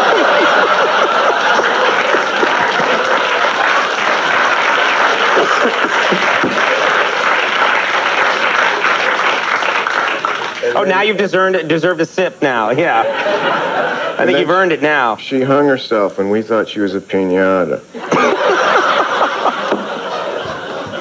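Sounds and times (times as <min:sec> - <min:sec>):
audience laughing: 0:00.0 - 0:09.2, 0:12.9 - 0:14.5, 0:18.0 - 0:21.0
audience clapping: 0:00.0 - 0:10.8, 0:18.1 - 0:21.0.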